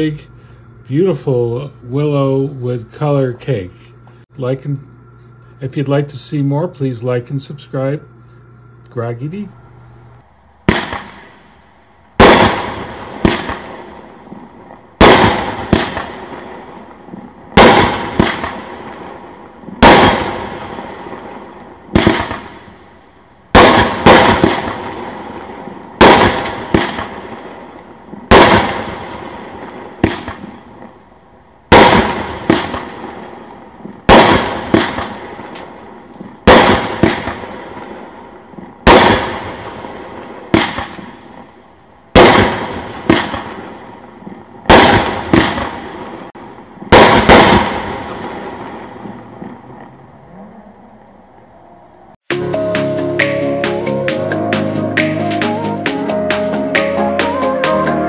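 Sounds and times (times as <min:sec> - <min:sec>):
firework bangs: 0:10.6 - 0:11.6, 0:12.2 - 0:22.8, 0:23.5 - 0:31.0, 0:31.7 - 0:49.9.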